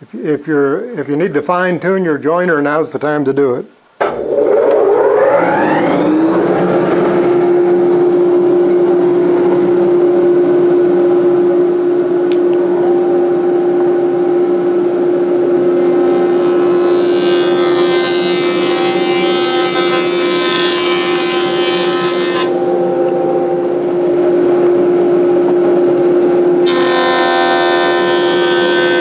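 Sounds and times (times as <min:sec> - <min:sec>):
board being cut on jointer: 0:04.0 - 0:09.9, 0:15.4 - 0:23.1, 0:26.6 - 0:29.0
jointer motor humming: 0:04.0 - 0:29.0.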